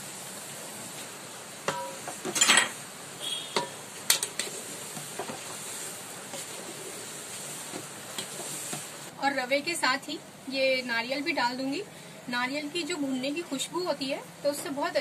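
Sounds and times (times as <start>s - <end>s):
faint steady sizzle: 0.0s - 15.0s.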